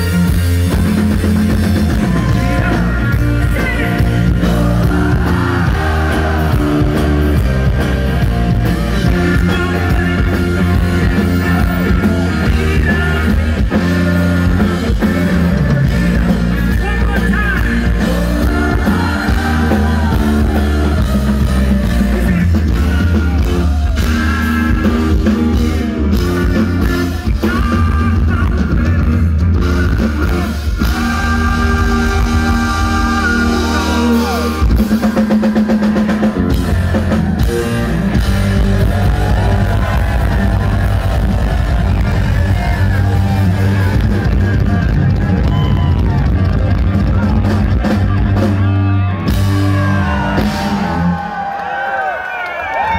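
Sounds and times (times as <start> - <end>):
bass line: 0.0 - 52.9
electric guitar: 0.0 - 52.9
male singer: 2.1 - 6.9, 9.0 - 34.5.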